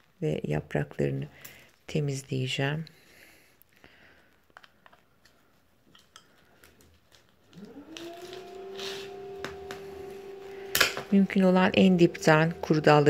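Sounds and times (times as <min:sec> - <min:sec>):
steady rising hum: 0:10.0 - 0:13.0.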